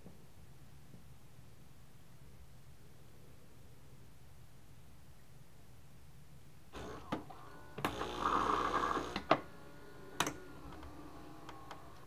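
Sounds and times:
faint steady machine whir: 6.7s - 12.0s
coffee grinder whirring: 6.8s - 9.3s.

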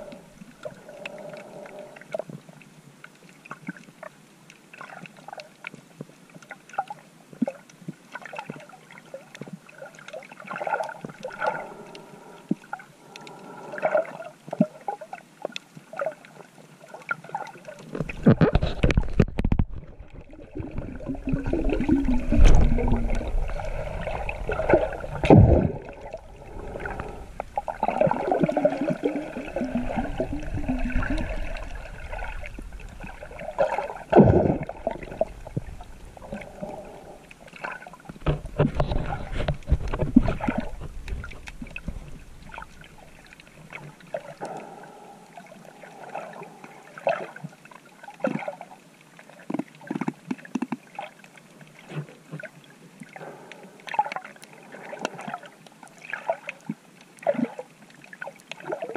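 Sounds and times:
water gushes: 0.0s - 2.3s, 15.9s - 58.9s
muffled water sloshing: 4.7s - 58.9s.

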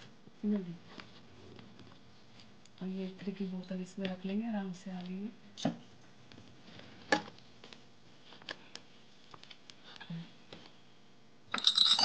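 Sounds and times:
metal dish clinking: 11.6s - 12.0s.

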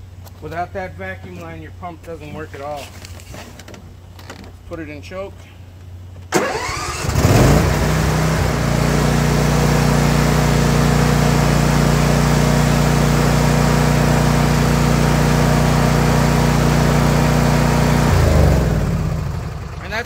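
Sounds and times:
electric starter cranking: 6.3s - 8.7s
mower engine running: 6.4s - 20.0s.

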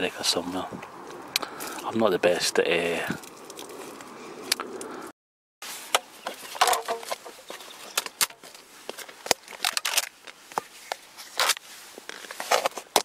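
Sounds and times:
crinkly plastic rustles: 5.6s - 13.0s.

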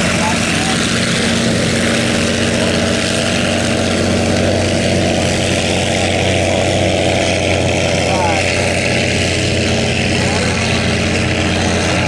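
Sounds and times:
racing boat engine running: 0.0s - 12.0s.

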